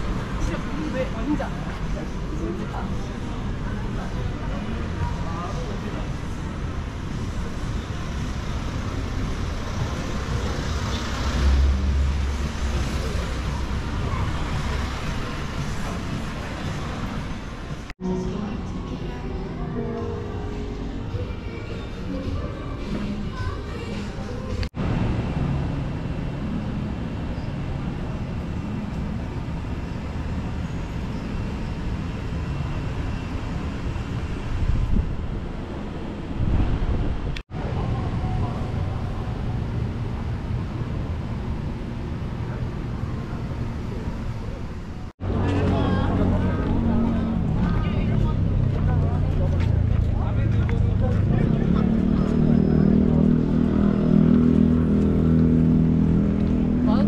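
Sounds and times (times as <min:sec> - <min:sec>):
cars passing close: 0:00.0 - 0:19.2, 0:20.6 - 0:57.0
city street rumble: 0:00.0 - 0:57.0.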